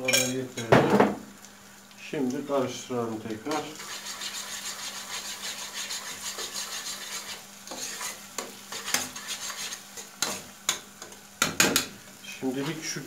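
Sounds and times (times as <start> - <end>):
food sizzling: 0.0 - 13.0
utensil scraping frying pan: 3.5 - 11.9, 12.5 - 13.0.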